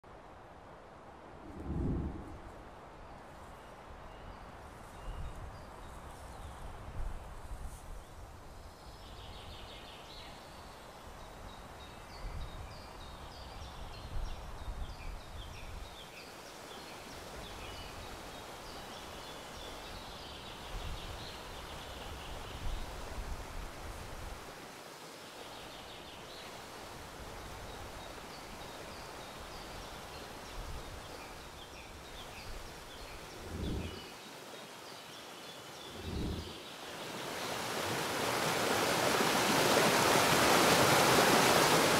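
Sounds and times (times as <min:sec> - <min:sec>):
low rumbles: 0:01.4 - 0:02.6, 0:33.2 - 0:34.1, 0:35.9 - 0:36.6
rushing water: 0:15.8 - 0:41.9
faint bird chirping: 0:27.7 - 0:37.5.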